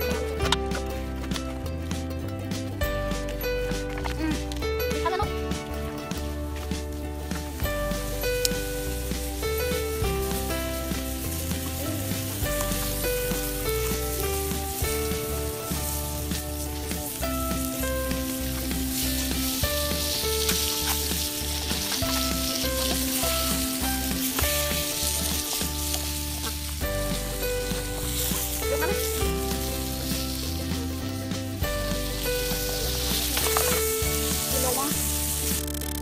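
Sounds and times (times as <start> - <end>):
background music with plodding bass: 0.0 - 36.0
fish sizzling on metal: 5.0 - 36.0.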